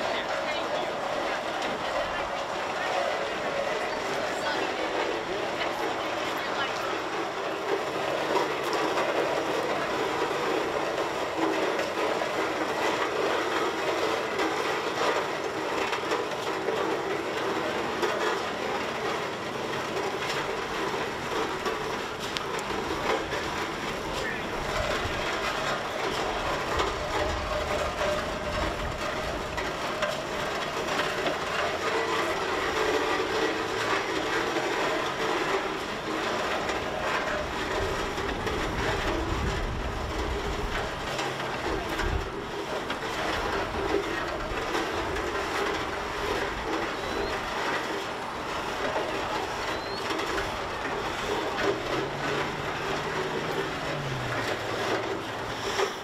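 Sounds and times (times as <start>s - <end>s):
steam engine running over gravel: 0.0s - 56.0s
steam escaping: 40.8s - 56.0s.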